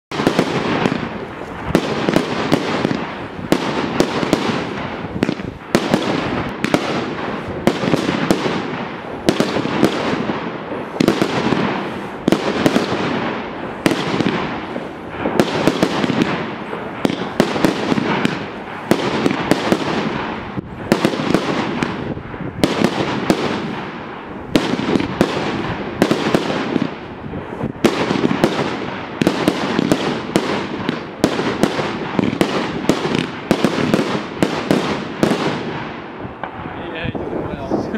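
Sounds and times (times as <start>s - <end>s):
fireworks bangs: 0.1s - 37.9s
fireworks rushing noise: 0.1s - 37.9s.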